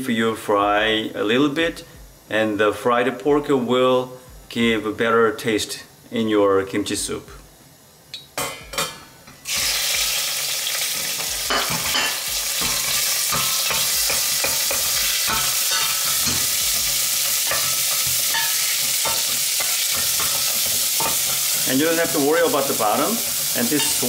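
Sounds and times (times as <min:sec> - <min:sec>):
meat sizzling in hot oil: 0:09.4 - 0:24.0.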